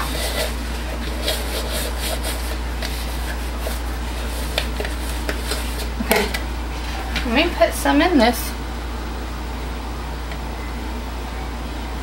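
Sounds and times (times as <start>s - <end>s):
paper towel rubbing plastic: 0.0s - 6.0s.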